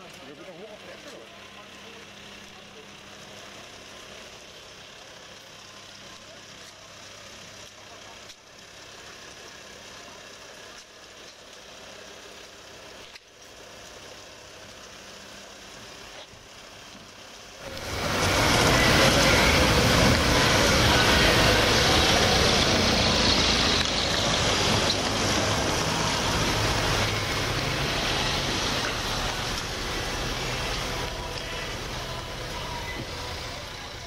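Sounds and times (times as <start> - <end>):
street noise: 0.0 - 34.0
vehicle engine idling: 0.0 - 34.0
loud rush of noise: 17.6 - 34.0.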